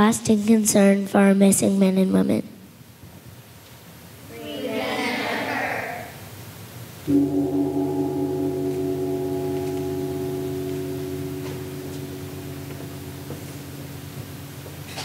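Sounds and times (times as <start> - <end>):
gong ringing: 7.1 - 15.0.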